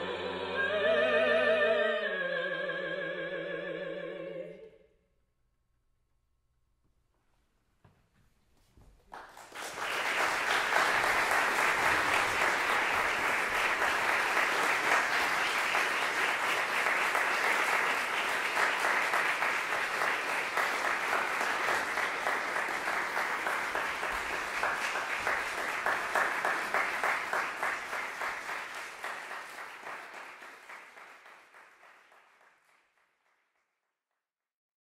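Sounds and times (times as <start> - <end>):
audience applauding: 9.0 - 33.6.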